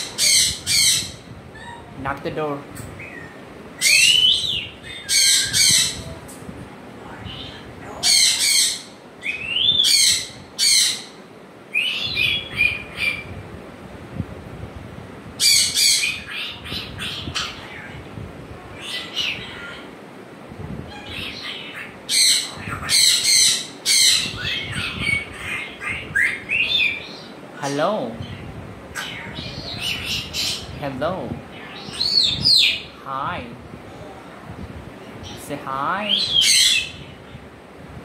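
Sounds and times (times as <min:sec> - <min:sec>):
parrot squawking and whistling: 0:00.0 - 0:01.9, 0:03.8 - 0:06.0.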